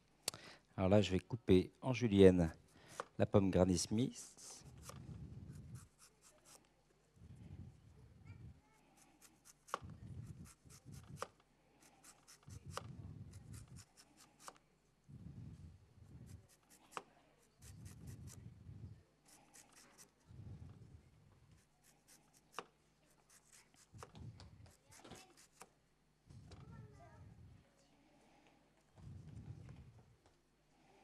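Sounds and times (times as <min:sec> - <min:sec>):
knife slicing apple: 0:09.0 - 0:12.8, 0:24.7 - 0:25.7.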